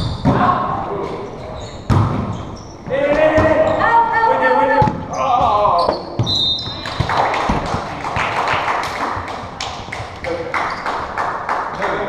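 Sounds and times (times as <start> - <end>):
echoing gym background noise: 0.0 - 12.0
ball bouncing on wooden floor: 1.9 - 2.3.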